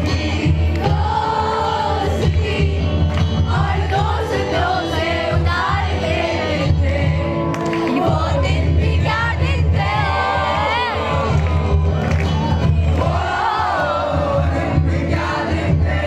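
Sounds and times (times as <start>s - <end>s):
group of young voices singing: 0.0s - 11.8s, 12.6s - 16.0s
acoustic guitars: 0.0s - 16.0s.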